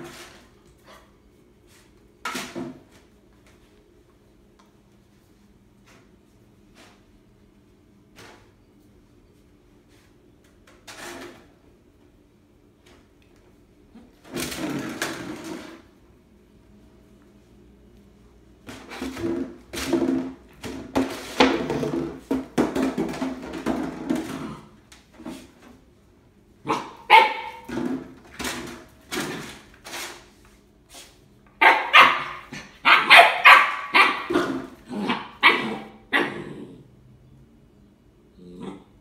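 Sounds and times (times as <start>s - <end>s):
puppy barking and yapping: 26.6s - 27.7s, 31.6s - 36.4s.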